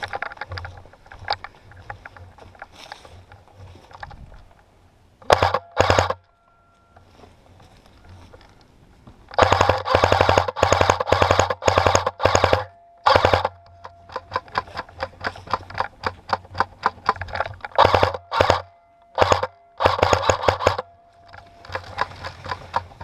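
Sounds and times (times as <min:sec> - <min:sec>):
airsoft gun firing bursts: 0:05.3 - 0:06.2, 0:09.3 - 0:14.6, 0:15.5 - 0:20.9.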